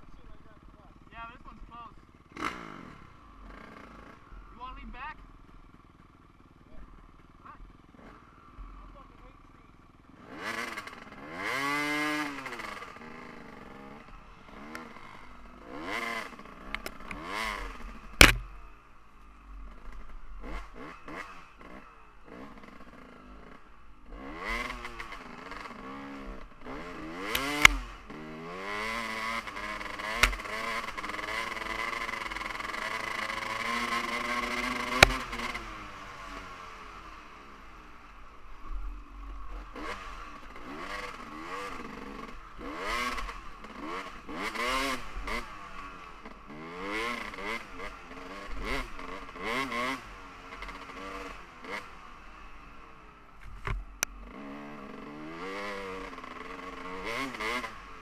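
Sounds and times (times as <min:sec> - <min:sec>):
dirt bike engine revving: 0:00.0 - 0:58.0
sharp knocks: 0:18.2 - 0:18.5.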